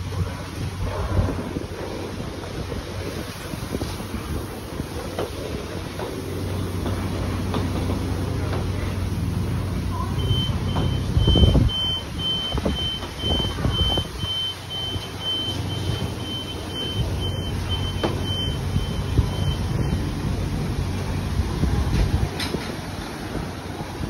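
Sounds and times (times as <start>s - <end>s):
high electronic beeps: 10.0s - 19.7s.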